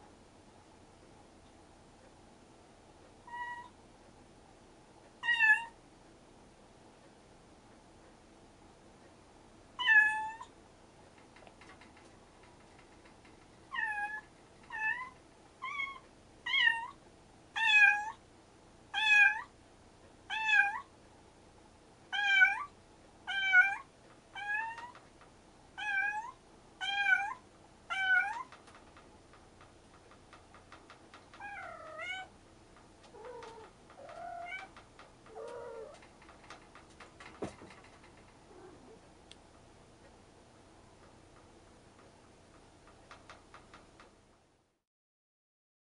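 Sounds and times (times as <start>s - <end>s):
cats meowing: 25.8s - 28.5s, 31.4s - 32.3s, 33.0s - 36.0s.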